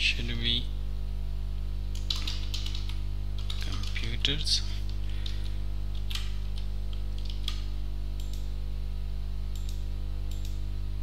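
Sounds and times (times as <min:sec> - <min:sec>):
low electrical hum: 0:00.0 - 0:11.0
keyboard keystrokes: 0:02.0 - 0:04.1, 0:05.2 - 0:08.5.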